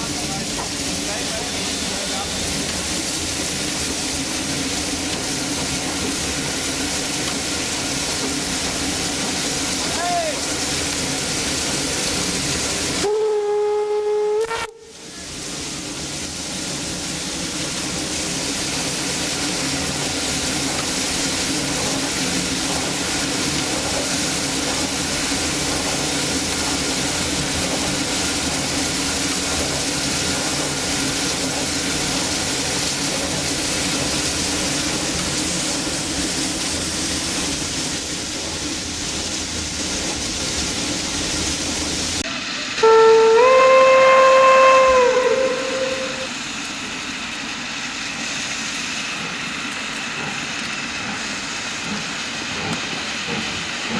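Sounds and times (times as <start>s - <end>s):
steam hissing: 0.0s - 53.9s
steam locomotive whistle: 13.0s - 15.0s, 42.7s - 46.3s.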